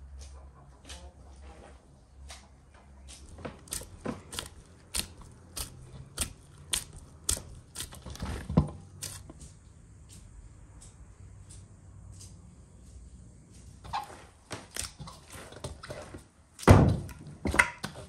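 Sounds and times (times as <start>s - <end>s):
dough slapping and squelching: 3.1s - 9.4s, 13.9s - 18.0s.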